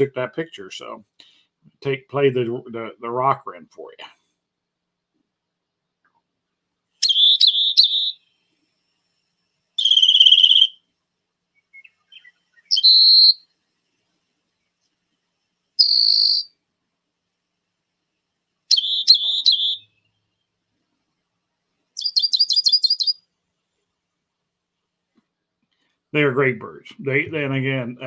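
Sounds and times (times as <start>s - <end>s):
wren song trills: 7.0s - 8.4s, 9.8s - 10.8s, 11.5s - 14.8s, 15.7s - 16.6s, 18.6s - 20.6s, 21.9s - 23.3s.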